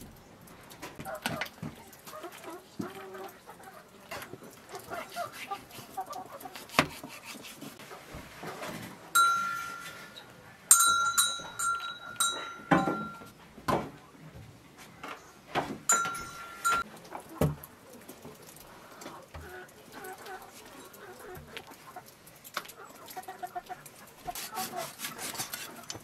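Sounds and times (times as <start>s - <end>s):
metal clinks: 9.2s - 13.3s, 15.9s - 16.9s.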